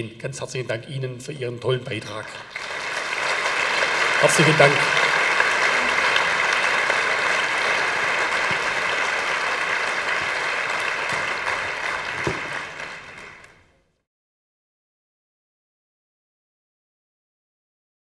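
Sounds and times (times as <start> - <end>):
audience applauding: 2.3 - 13.7.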